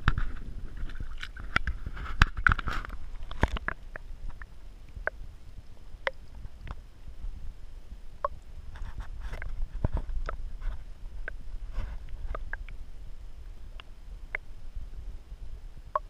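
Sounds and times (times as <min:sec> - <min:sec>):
muffled underwater clicks and knocks: 0:00.0 - 0:06.8, 0:08.2 - 0:12.8, 0:13.7 - 0:14.5
water splashing and sloshing: 0:00.0 - 0:06.8.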